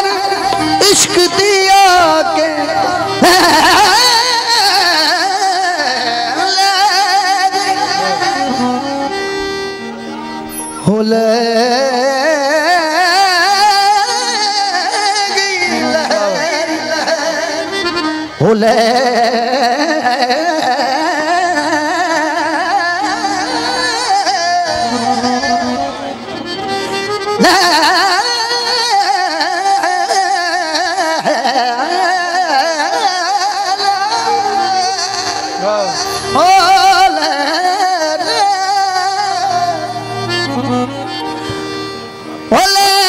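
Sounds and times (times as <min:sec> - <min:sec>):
keyboard accompaniment: 0:00.0 - 0:43.0
man singing folk song: 0:00.1 - 0:08.9, 0:10.8 - 0:17.7, 0:18.4 - 0:26.1, 0:27.4 - 0:40.1, 0:42.5 - 0:43.0.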